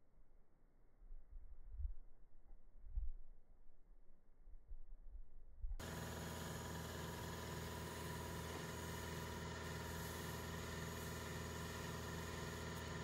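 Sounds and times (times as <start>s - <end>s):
machine humming: 5.8s - 13.0s.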